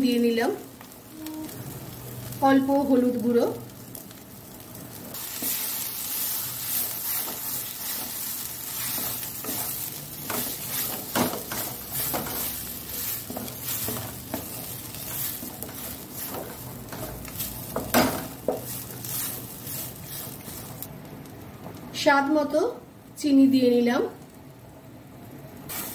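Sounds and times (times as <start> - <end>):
light frying sizzle: 0.0 - 25.9
spatula scraping a pan: 5.3 - 20.8.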